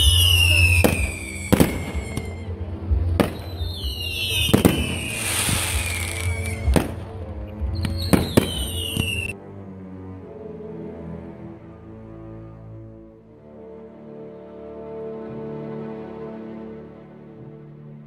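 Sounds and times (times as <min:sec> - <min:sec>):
fireworks bangs: 0:00.0 - 0:02.5, 0:03.1 - 0:07.2
fireworks whistles: 0:00.0 - 0:02.5, 0:03.3 - 0:07.0, 0:07.8 - 0:09.3.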